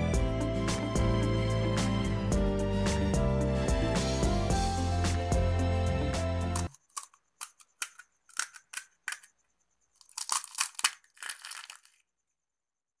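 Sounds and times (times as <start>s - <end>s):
crisp shell crunching in hand: 10.0s - 12.0s.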